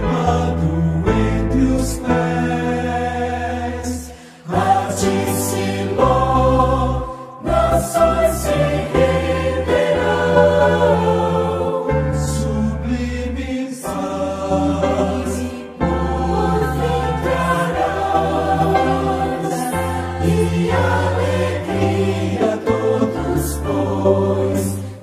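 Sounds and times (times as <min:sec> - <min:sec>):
choir singing a hymn: 0:00.0 - 0:25.0.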